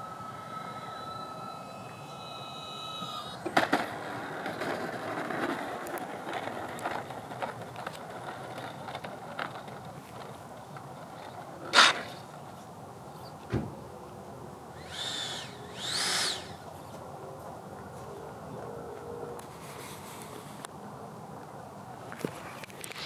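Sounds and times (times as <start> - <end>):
wheels rolling clatter: 0.0 - 13.5
wheels knocking on runway: 3.4 - 11.9
thump: 13.5 - 13.8.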